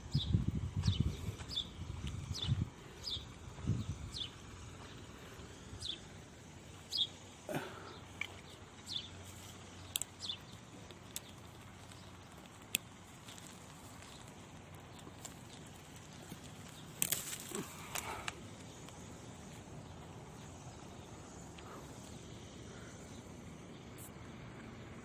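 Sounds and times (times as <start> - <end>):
faint outdoor hiss: 0.0 - 25.0
small bird chirping: 6.7 - 25.0.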